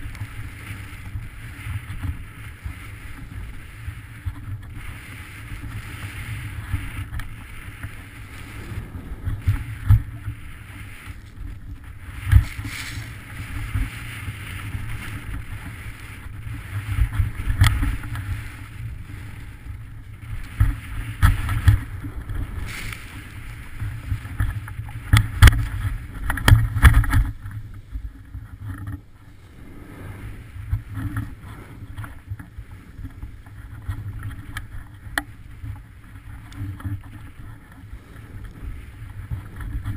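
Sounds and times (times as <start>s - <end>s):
skis scraping on snow: 0.0s - 39.9s
wind buffeting microphone: 0.0s - 39.9s.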